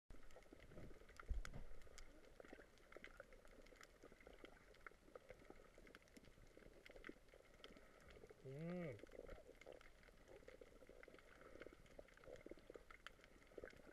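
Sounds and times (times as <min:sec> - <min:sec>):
underwater crackle of clicks: 0:00.1 - 0:13.9
muffled low thump: 0:01.2 - 0:01.8.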